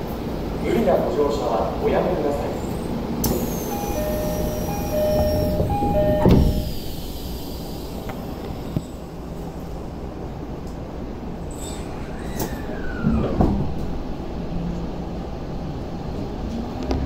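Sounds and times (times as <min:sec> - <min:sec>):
sliding train doors shutting: 0:02.6 - 0:09.0, 0:11.4 - 0:14.9
two-tone door chime: 0:03.6 - 0:06.9.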